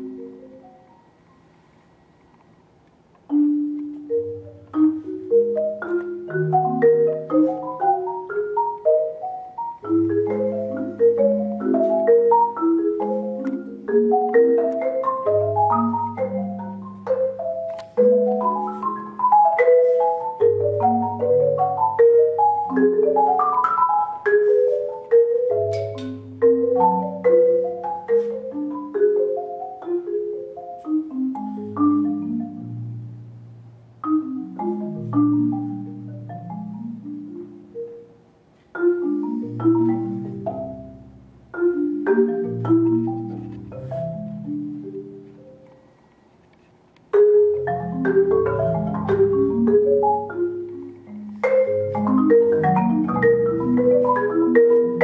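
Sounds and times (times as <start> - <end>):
low marimba bass notes ringing: 0.0 - 1.1, 3.3 - 45.6, 47.1 - 55.0
marimba notes: 0.0 - 1.5, 3.2 - 46.1, 47.1 - 55.0.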